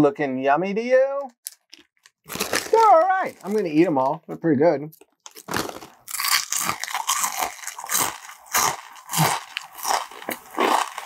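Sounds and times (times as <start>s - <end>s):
crunching chips: 1.4s - 4.2s, 5.0s - 11.0s.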